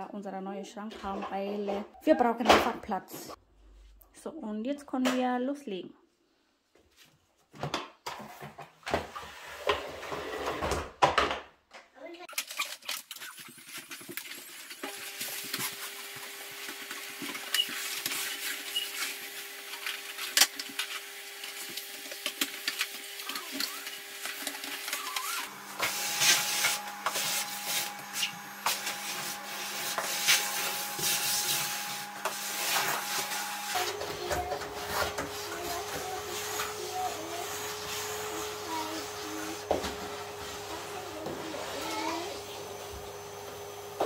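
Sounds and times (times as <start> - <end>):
vacuum cleaner running: 9.0 - 10.8, 14.8 - 44.0.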